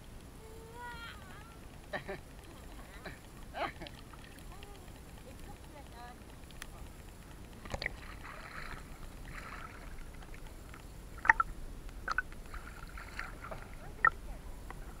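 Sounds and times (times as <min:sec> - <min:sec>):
water sloshing against camera: 0:00.4 - 0:15.0
sharp water splashes: 0:07.6 - 0:14.3.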